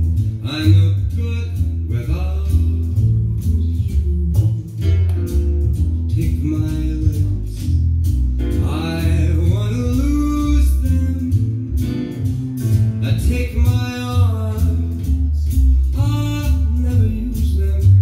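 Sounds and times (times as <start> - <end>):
plucked guitar: 0.0 - 18.0
steady bass line: 0.0 - 18.0
person singing: 0.4 - 5.4, 6.1 - 7.9, 8.5 - 18.0.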